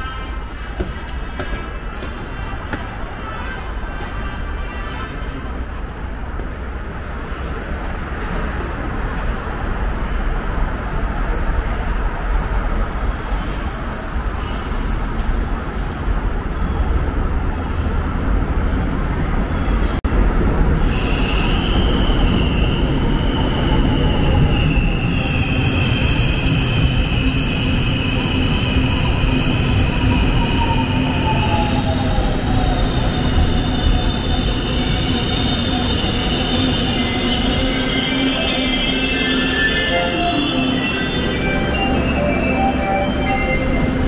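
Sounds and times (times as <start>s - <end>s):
train wheels rumbling on rail: 0.0s - 44.0s
high wheel squeal: 20.9s - 44.0s.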